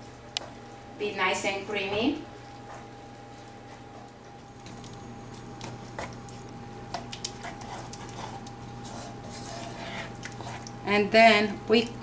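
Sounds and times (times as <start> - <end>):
steady low hum: 0.0 - 12.0
thick sauce squelching: 2.4 - 10.9.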